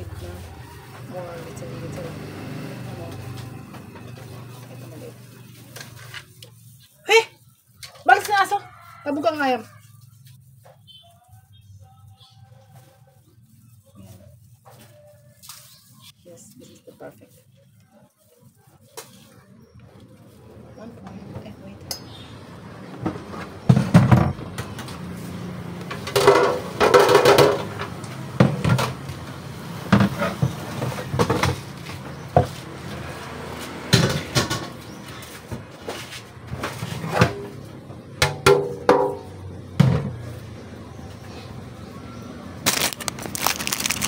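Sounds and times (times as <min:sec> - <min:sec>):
skewers knocking on metal basin: 0:26.1 - 0:27.9.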